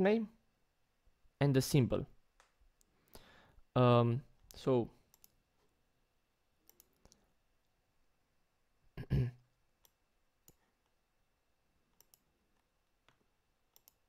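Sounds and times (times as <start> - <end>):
computer mouse clicks: 4.4 - 5.4, 6.6 - 7.3, 9.8 - 11.0, 11.9 - 14.0.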